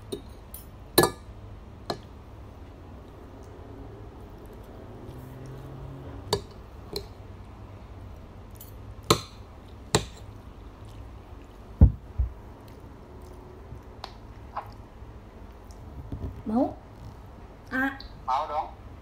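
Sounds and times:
dull thumps: 11.8 - 12.4.

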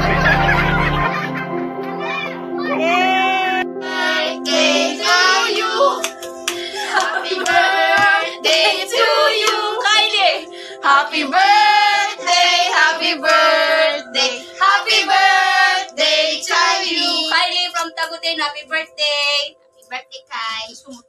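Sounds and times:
background music: 0.0 - 21.0
women and children singing: 2.9 - 6.0, 7.0 - 17.9
hand clapping: 6.0 - 8.7, 9.4 - 9.6.

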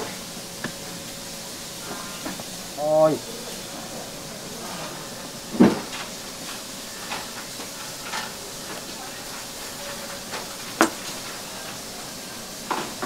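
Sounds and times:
steady kitchen hiss: 0.0 - 13.0.

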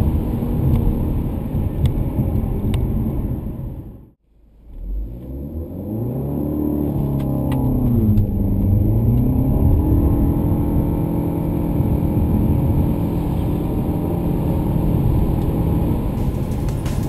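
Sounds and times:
car engine accelerating: 0.0 - 17.0.

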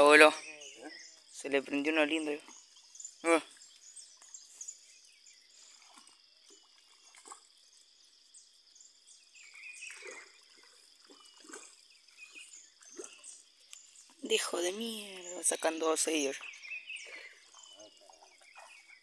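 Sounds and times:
trickling water: 0.0 - 19.0
short bird chirps: 9.4 - 10.4.

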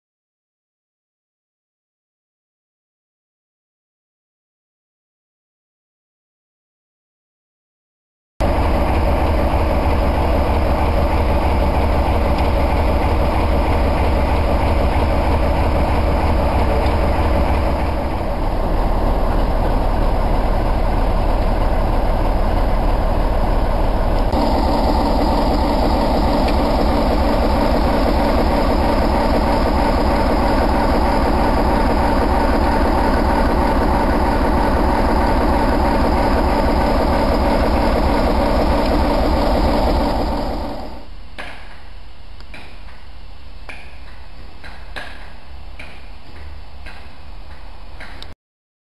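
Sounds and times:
locomotive engine idling: 8.4 - 41.1.

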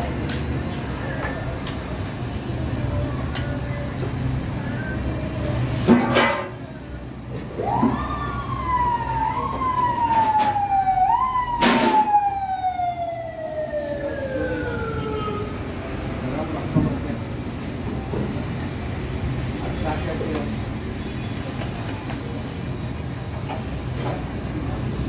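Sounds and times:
emergency vehicle siren wailing: 7.4 - 16.6.

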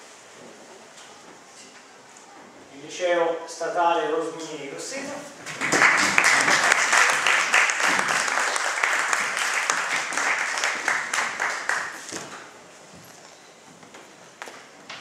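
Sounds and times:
audience applauding: 5.4 - 12.1.

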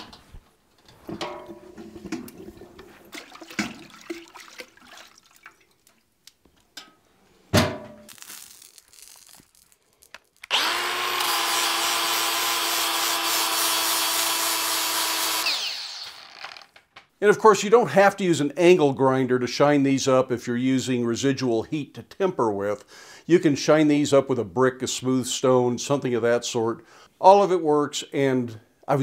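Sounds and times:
bucket lid clanking: 1.0 - 4.4
angle grinder grinding steel: 10.4 - 16.7.

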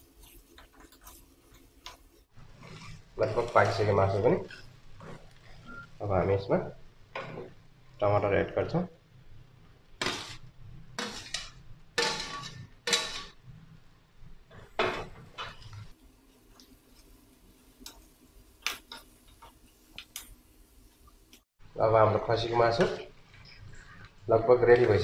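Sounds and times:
spatula scraping and knocking pan: 0.0 - 5.7, 10.0 - 13.4.

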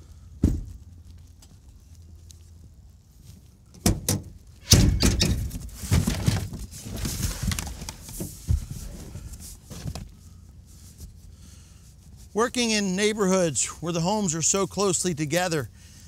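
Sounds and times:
scraping and rustling: 5.2 - 12.4.

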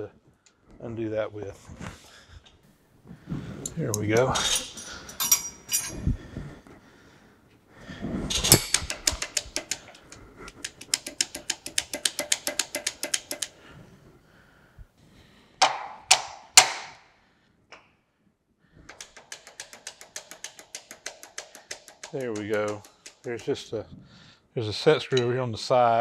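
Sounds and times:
ratchet wrench clicking: 8.3 - 13.6, 18.9 - 23.5.

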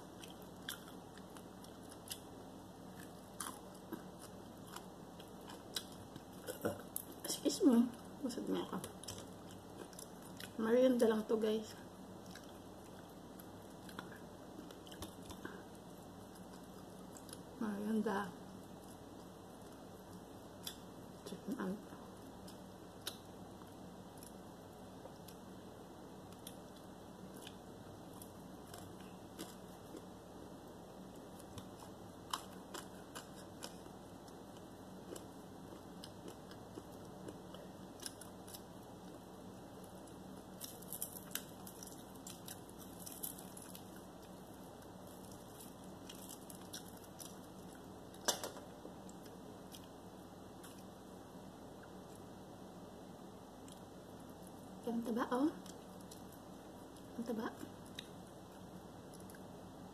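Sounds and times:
chewing: 0.2 - 2.3, 2.9 - 7.2, 8.8 - 10.6, 12.2 - 17.5, 31.3 - 39.2, 39.9 - 48.3.

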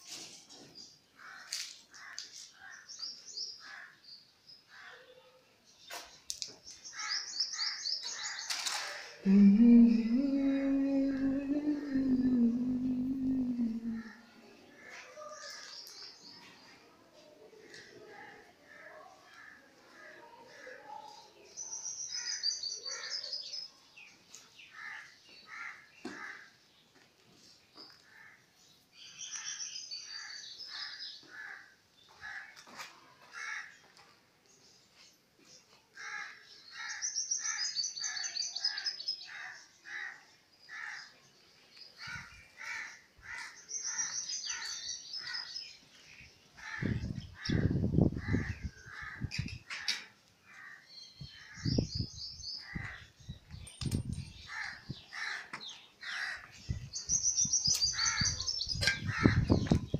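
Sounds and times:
birds chirping: 40.7 - 49.8, 50.8 - 59.9
birds calling: 41.8 - 59.9.

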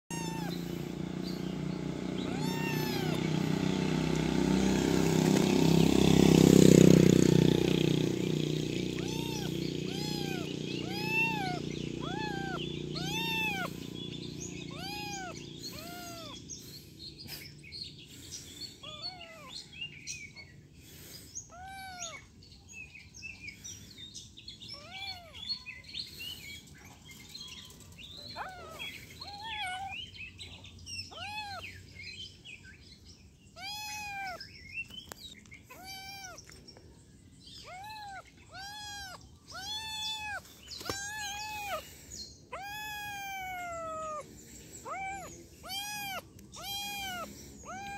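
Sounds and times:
kitten meowing: 0.1 - 1.4, 2.2 - 3.6, 8.8 - 16.4, 18.8 - 19.5, 21.5 - 22.3, 24.7 - 25.7, 28.2 - 30.0, 31.1 - 31.7, 33.5 - 34.4, 35.7 - 36.5, 37.6 - 47.9.

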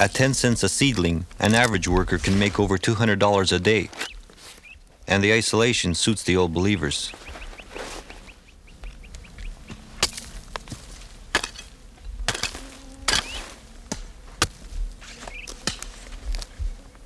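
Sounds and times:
hand tool striking: 10.0 - 14.6, 15.5 - 16.0.

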